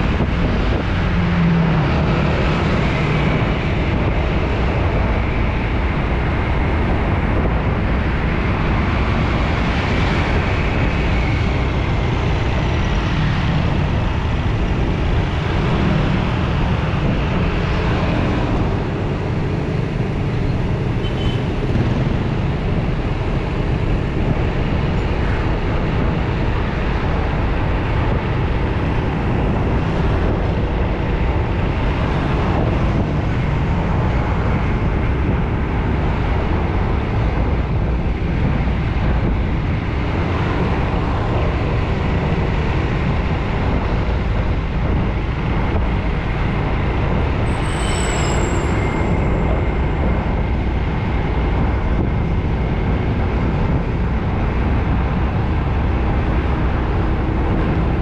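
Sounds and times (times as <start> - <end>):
vehicles passing on road: 0.0 - 58.0
high-pitched squeal: 47.5 - 50.0.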